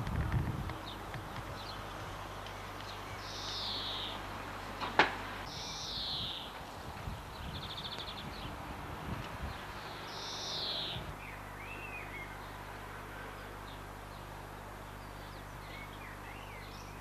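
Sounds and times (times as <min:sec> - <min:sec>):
birds chirping: 0:00.0 - 0:17.0
low hum and hiss: 0:00.0 - 0:17.0
harsh bird call: 0:05.5 - 0:06.6.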